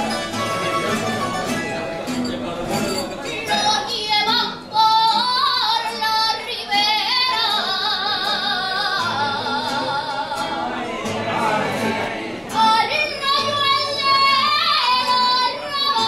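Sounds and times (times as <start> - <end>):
woman singing with vibrato: 3.6 - 10.8, 12.5 - 16.0.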